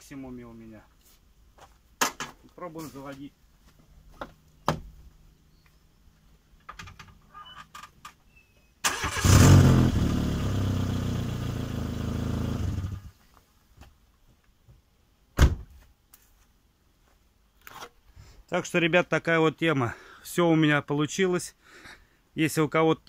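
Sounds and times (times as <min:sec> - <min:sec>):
car starter cranking: 0:08.8 - 0:09.7
thump: 0:15.4 - 0:15.8.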